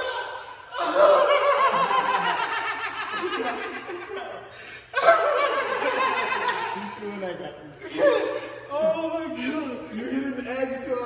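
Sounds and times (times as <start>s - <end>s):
men laughing hard: 0.0s - 7.0s.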